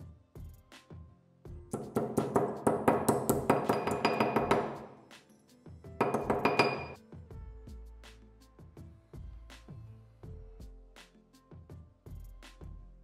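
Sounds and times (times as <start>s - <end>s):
hammer clinking on metal: 1.8s - 5.0s, 6.0s - 7.0s.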